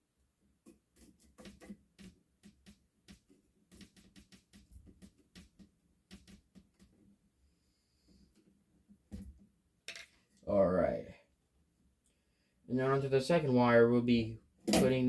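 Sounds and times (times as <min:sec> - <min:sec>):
hands clicking and tapping screws: 0:00.6 - 0:07.0.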